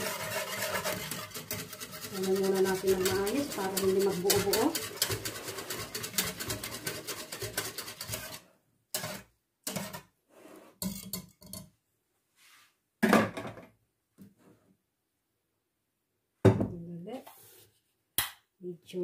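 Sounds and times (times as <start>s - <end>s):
whisk beating against pot: 0.0s - 8.4s, 9.0s - 10.0s
whisk knocking on pot: 0.0s - 8.4s, 9.0s - 10.0s.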